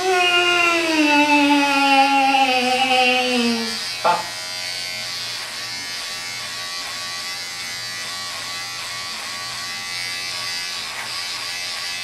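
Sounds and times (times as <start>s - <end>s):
electric beard trimmer buzzing: 0.0s - 12.0s.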